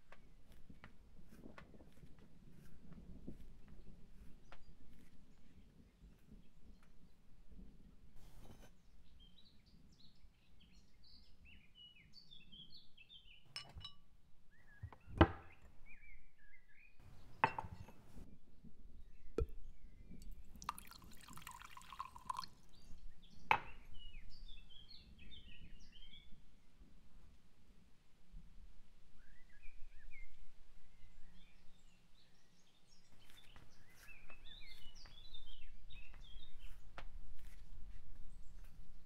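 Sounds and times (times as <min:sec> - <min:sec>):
birds chirping faintly: 0:00.0 - 0:26.5, 0:29.2 - 0:39.0
glass and bottle clinking on countertop: 0:13.5 - 0:14.0, 0:17.1 - 0:18.1, 0:20.6 - 0:22.5
drink pouring into a glass: 0:20.2 - 0:22.8.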